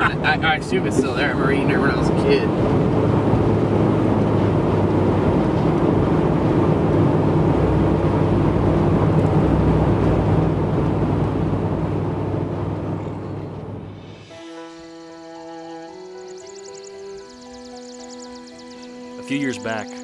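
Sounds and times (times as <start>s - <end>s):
road and engine noise in cabin: 0.0s - 14.0s.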